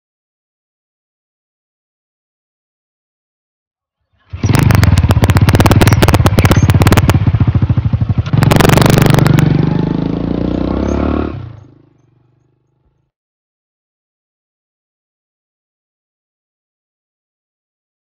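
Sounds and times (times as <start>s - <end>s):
motorcycle kick-start: 4.2s - 9.8s
motorcycle engine running and revving: 4.3s - 13.1s.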